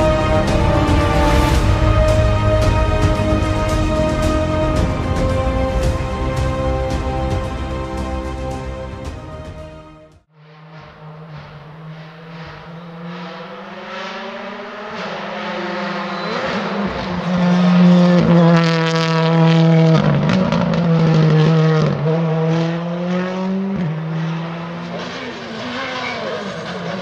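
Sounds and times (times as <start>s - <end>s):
rally car engine revving high: 0.0s - 9.3s, 10.3s - 27.0s.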